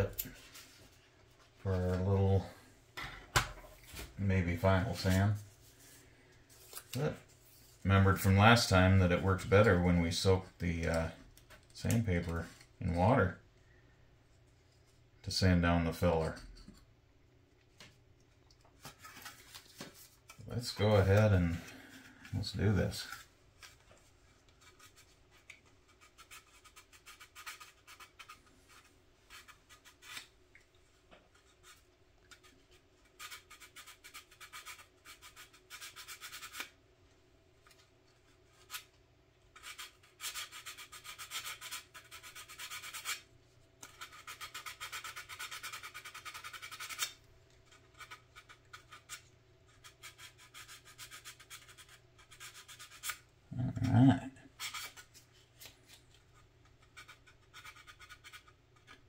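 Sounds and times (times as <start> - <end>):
sandpaper rasping on plastic: 25.9 - 30.3, 32.4 - 36.8, 39.6 - 47.2, 47.9 - 53.2, 56.9 - 59.0.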